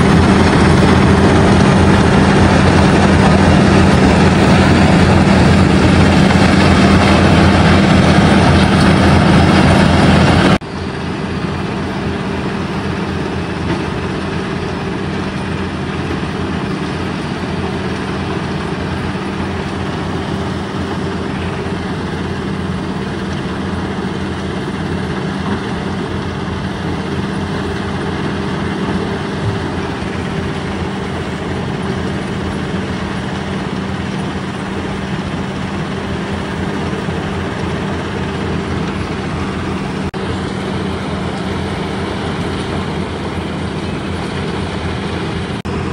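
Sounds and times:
heavy diesel machinery drone: 0.0 - 45.9.

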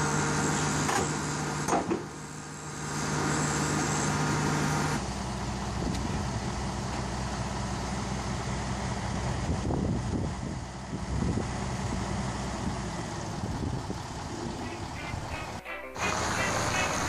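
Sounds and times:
diesel engine idling: 0.0 - 17.0
short sharp noise: 14.6 - 17.0.

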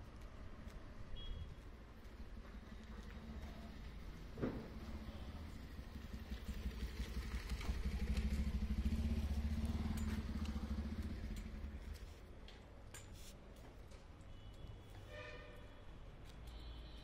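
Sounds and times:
vehicle engine passing by: 3.1 - 12.0.

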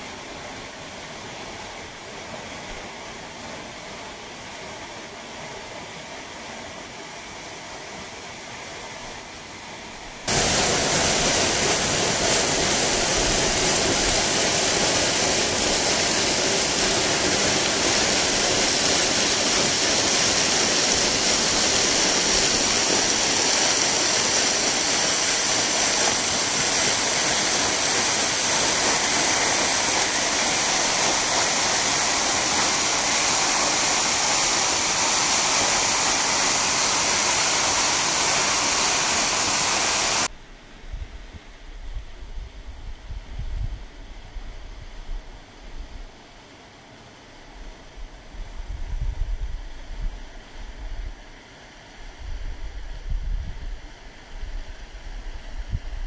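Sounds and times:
waterfall roaring: 10.3 - 40.3.

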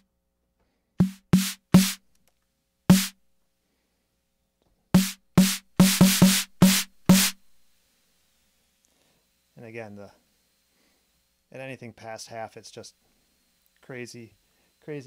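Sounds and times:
distorted drum machine snare hits: 1.0 - 2.0, 2.9 - 3.2, 5.0 - 7.4.

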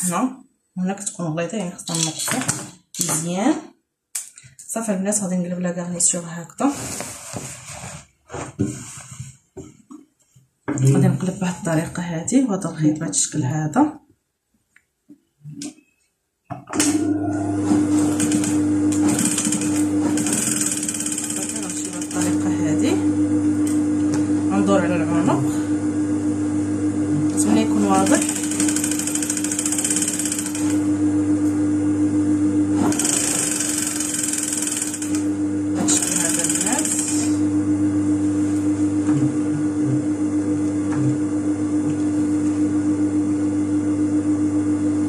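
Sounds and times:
sewing machine running: 16.8 - 23.0, 27.3 - 31.0, 32.8 - 37.4.

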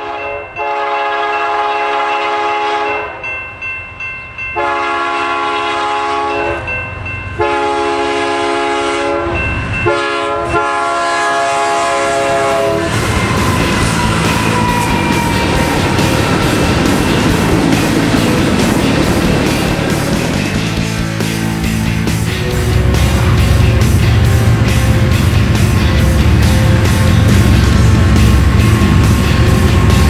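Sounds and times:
locomotive air horn blasts: 0.0 - 3.2, 4.6 - 6.7, 7.4 - 18.6
train wheel noise: 8.8 - 30.0
locomotive engine rumble: 10.8 - 30.0.

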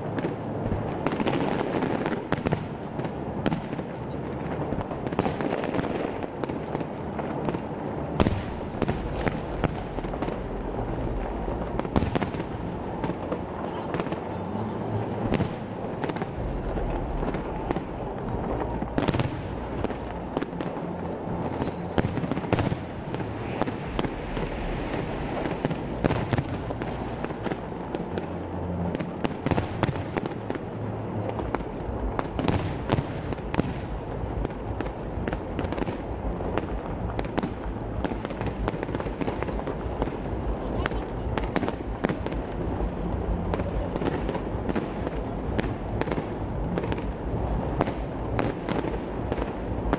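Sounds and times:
firework shells bursting and crackling: 0.0 - 49.9
short high firework whistles: 15.9 - 17.2, 21.5 - 22.2.

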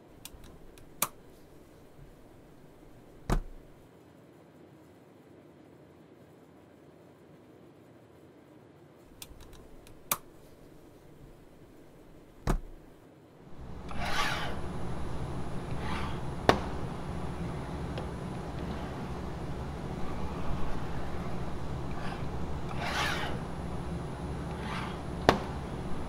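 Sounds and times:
laptop thump on table: 12.4 - 12.7
low hum: 13.5 - 26.0
hands rubbing over laptop: 13.6 - 26.0.

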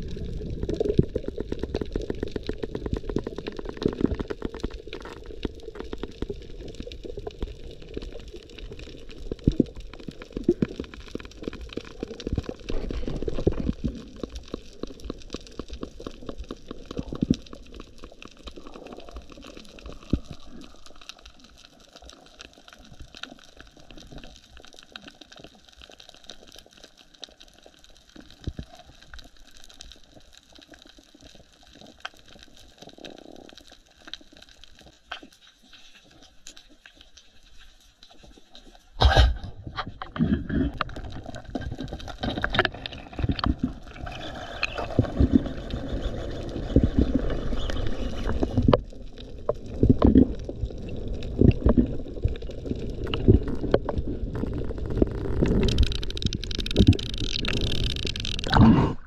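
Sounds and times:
underwater water rushing: 0.0 - 24.4, 39.0 - 59.0
crackle of sharp clicks: 39.0 - 58.7.

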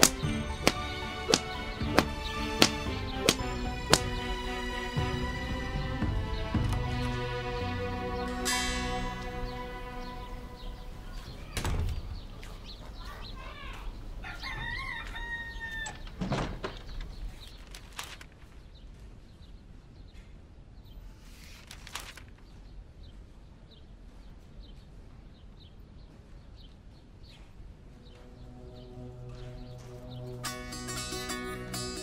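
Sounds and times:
dull thumps: 0.0 - 4.2
chicken calls: 12.3 - 16.2
rooster crowing: 14.2 - 16.2.

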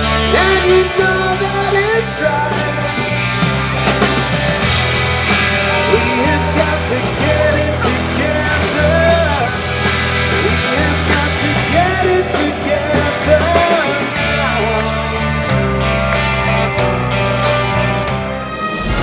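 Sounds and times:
man singing lead: 0.0 - 3.5, 5.2 - 15.7
live rock band playing: 0.0 - 19.0.

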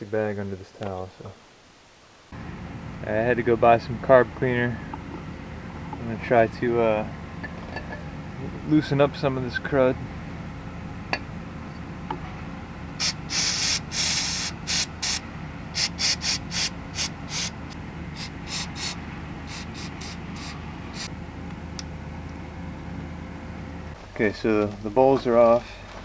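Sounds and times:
aerosol spray hissing: 13.0 - 15.2, 15.8 - 17.6, 18.2 - 21.1.

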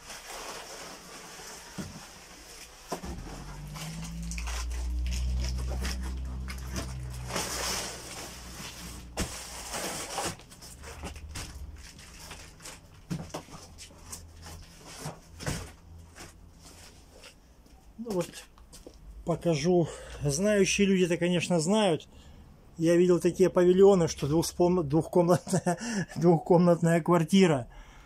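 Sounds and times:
cardboard box scraping and rustling: 0.0 - 17.3
low rumble: 3.0 - 9.8.

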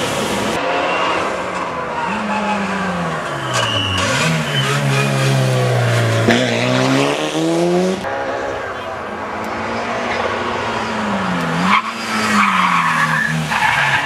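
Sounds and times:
rally car engine revving: 0.5 - 8.6.

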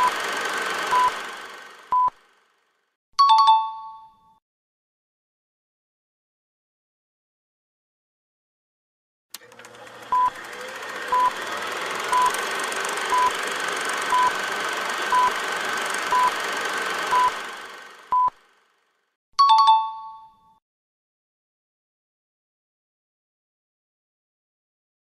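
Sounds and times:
two-tone chime: 3.2 - 4.4, 19.4 - 20.6
short electronic beeps: 17.1 - 17.3.

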